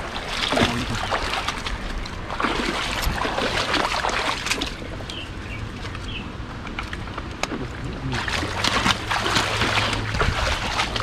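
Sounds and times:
water rushing: 0:00.0 - 0:05.9, 0:06.7 - 0:11.0
creek water splashing: 0:00.0 - 0:11.0.

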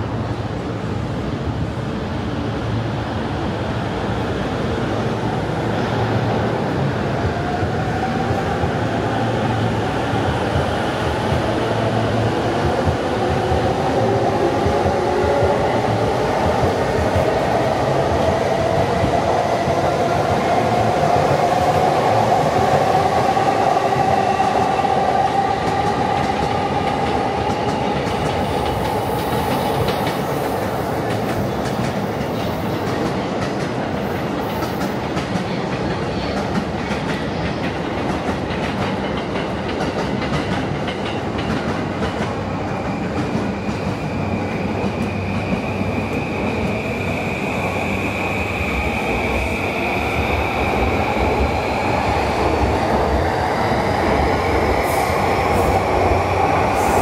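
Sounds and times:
train wheels clattering on rails: 0:10.0 - 0:47.3.

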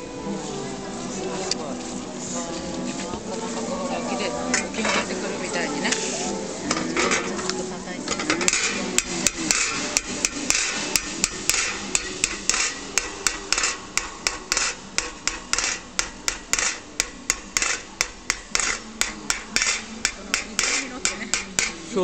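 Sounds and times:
hammer tapping on metal plate: 0:08.1 - 0:21.8.

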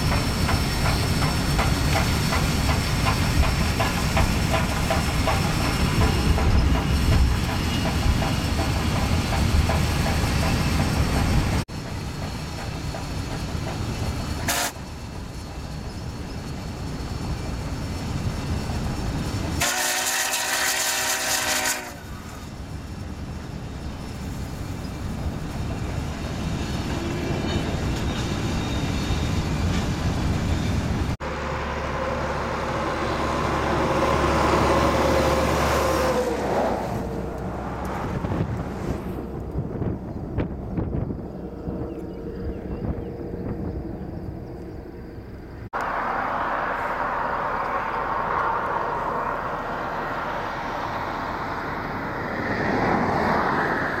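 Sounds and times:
steam whistle blowing: 0:14.5 - 0:14.8, 0:19.6 - 0:22.1.

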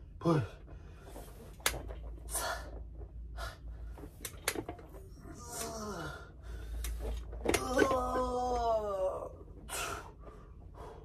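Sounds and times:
man breathing hard: 0:02.2 - 0:04.1, 0:05.9 - 0:07.3, 0:09.6 - 0:11.0
man grunting: 0:05.2 - 0:06.3, 0:07.6 - 0:09.4.

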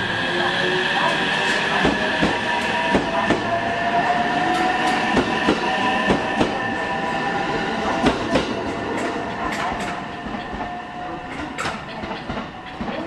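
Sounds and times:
train wheels clicking on rail joints: 0:04.5 - 0:06.6, 0:07.9 - 0:13.0.

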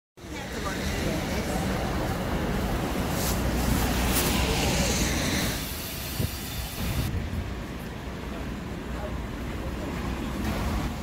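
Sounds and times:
passing traffic rumble: 0:00.2 - 0:11.0.

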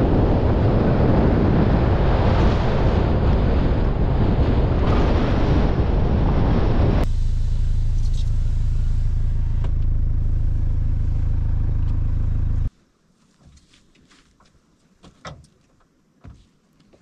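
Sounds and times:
wind buffeting microphone: 0:00.0 - 0:07.2
vehicle driving rumble: 0:04.5 - 0:12.7.

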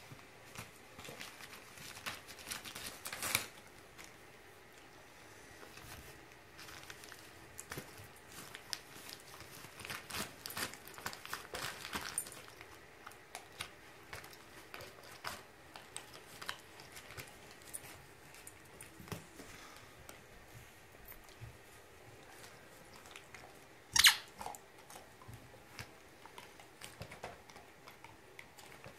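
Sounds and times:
wrapping paper tearing and crinkling: 0:00.5 - 0:03.6, 0:06.6 - 0:12.9.

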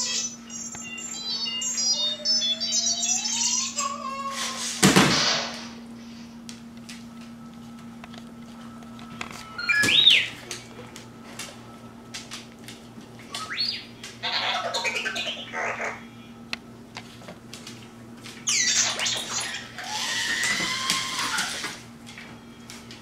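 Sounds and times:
toy robot beeps and whistles: 0:00.0 - 0:04.0, 0:13.3 - 0:15.9, 0:18.5 - 0:21.7.

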